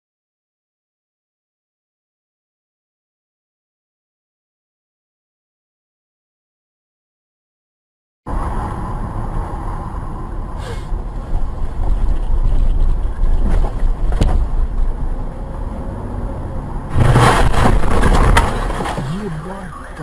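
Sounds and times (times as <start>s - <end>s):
car road and engine noise: 8.3s - 20.0s
vehicle collision crash: 16.9s - 20.0s.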